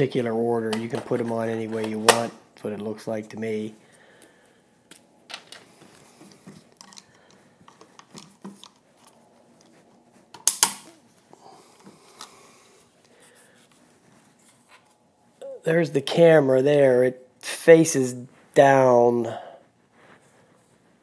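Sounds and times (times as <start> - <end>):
loud sharp plastic snap: 10.4 - 10.9.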